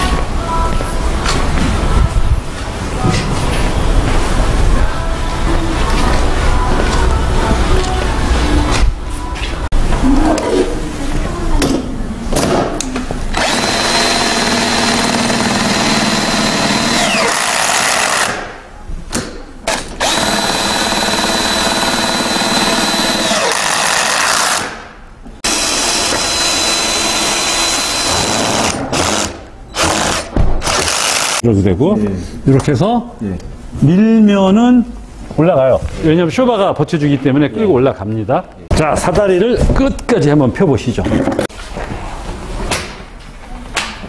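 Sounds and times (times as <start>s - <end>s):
cordless drill whining: 13.4s - 18.3s, 19.7s - 24.6s, 25.5s - 31.4s.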